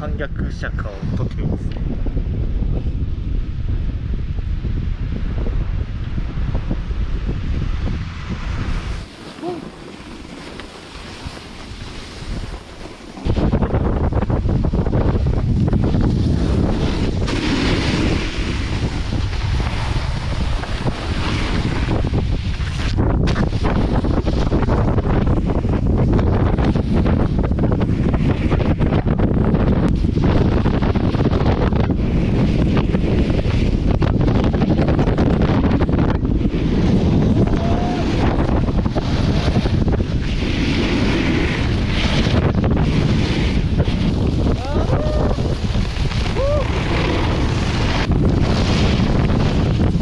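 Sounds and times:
wind buffeting microphone: 0.0s - 50.0s
snowboard edge hissing on snow: 8.2s - 15.1s, 15.7s - 25.7s, 36.5s - 50.0s.

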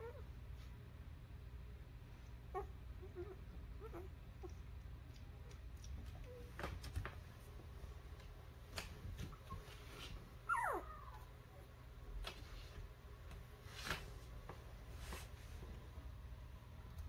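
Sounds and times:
low steady hum: 0.0s - 17.0s
puppy squeak: 10.5s - 11.3s.

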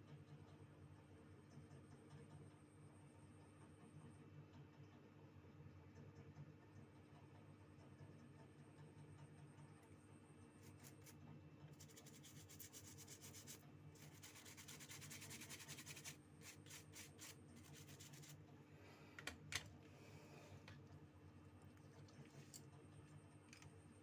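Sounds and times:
small brush scrubbing: 10.6s - 18.5s.

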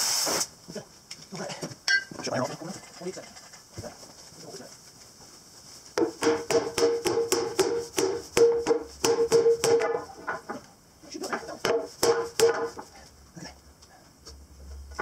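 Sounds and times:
hammer striking steel wheel: 6.0s - 10.0s, 11.7s - 12.8s.

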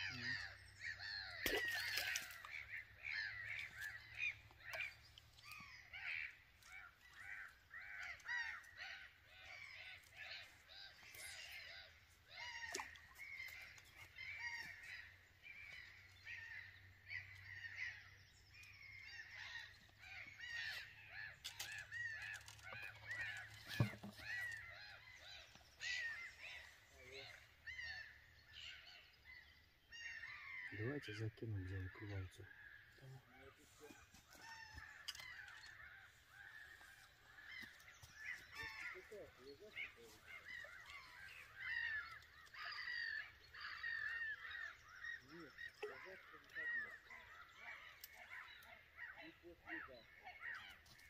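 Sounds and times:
birds calling harshly: 0.0s - 51.0s.

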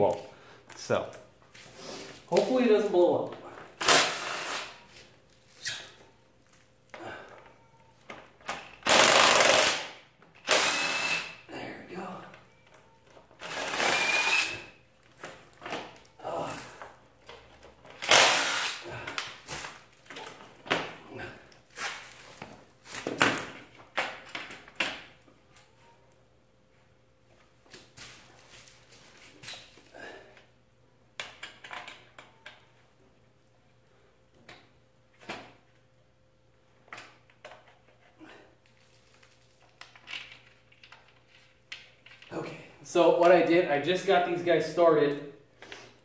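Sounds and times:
impact driver running: 3.8s - 4.7s, 8.8s - 11.4s, 13.4s - 14.7s, 18.0s - 18.8s.

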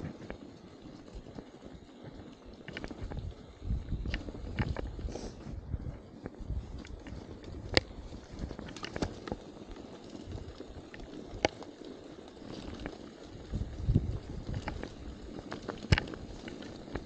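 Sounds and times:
bike tyres and wind rumble: 0.0s - 17.0s
bike rattling clicks and knocks: 6.2s - 17.0s.

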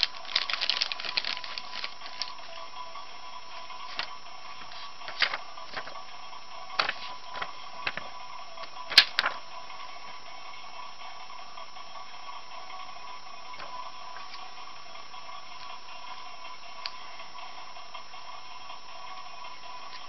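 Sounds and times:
steady hum: 0.0s - 20.0s
paper rustling and tapping: 5.1s - 6.0s, 6.8s - 8.1s.

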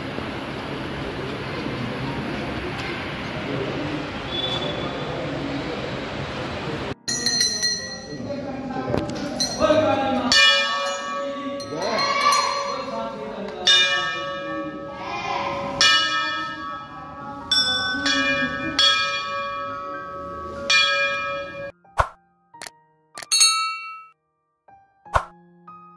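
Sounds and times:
people's voices: 0.0s - 19.8s
brass bells ringing: 7.0s - 8.4s, 9.4s - 21.7s, 23.2s - 24.2s.

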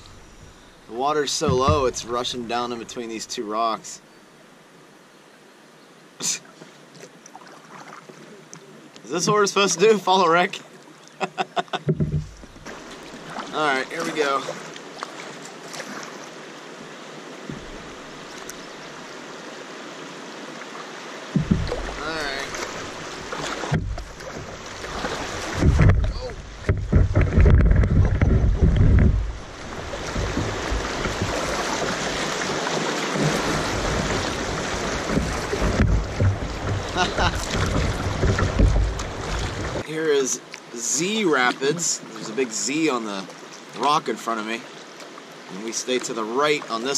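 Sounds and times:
low rumbles: 0.0s - 3.0s, 21.4s - 32.2s, 33.2s - 39.8s
river water rushing over rocks: 12.3s - 43.8s
river rapids rushing: 29.4s - 40.3s.

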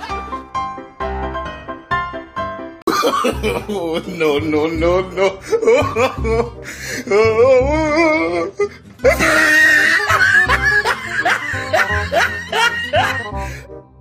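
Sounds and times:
rising laughing cries: 9.0s - 13.4s.

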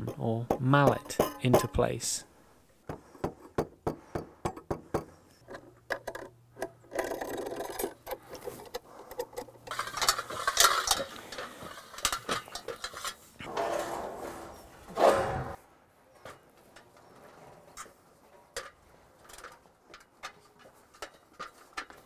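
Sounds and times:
scraping: 6.8s - 22.0s.

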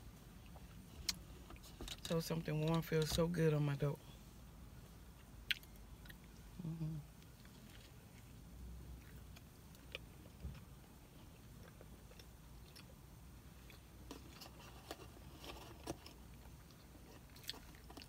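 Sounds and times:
quiet chewing: 5.5s - 18.0s.

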